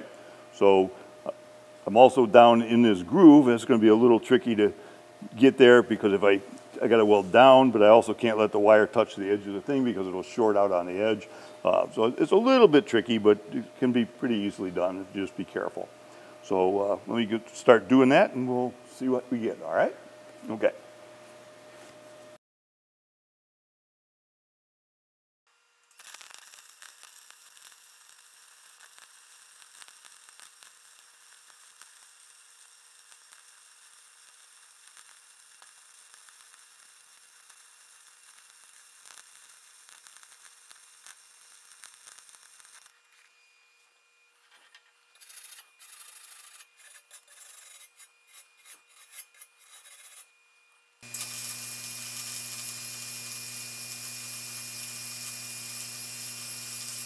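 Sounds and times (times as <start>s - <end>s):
welder arc crackling: 25.8s - 43.0s, 51.0s - 57.0s.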